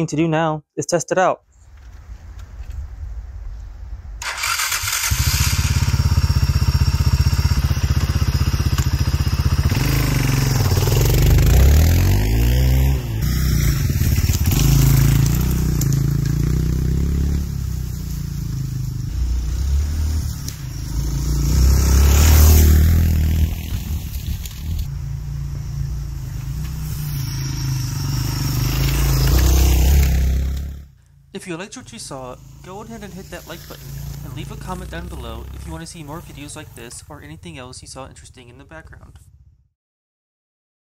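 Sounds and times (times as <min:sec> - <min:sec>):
motorcycle engine revving: 0:04.2 - 0:31.0, 0:31.8 - 0:37.9
motorcycle engine idling: 0:04.4 - 0:11.4.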